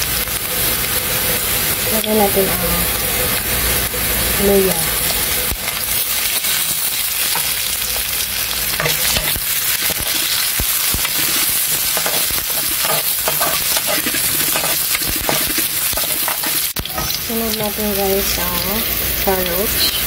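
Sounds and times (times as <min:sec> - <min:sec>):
food sizzling in hot oil: 0:00.0 - 0:20.0
spatula scraping metal wok: 0:08.7 - 0:17.7.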